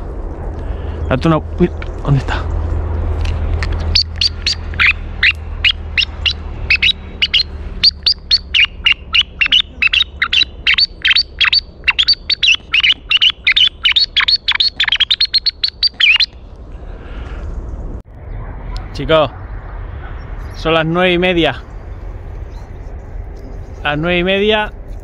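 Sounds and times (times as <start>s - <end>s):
bird chirping rapidly: 3.8s - 16.5s, 21.6s - 24.1s.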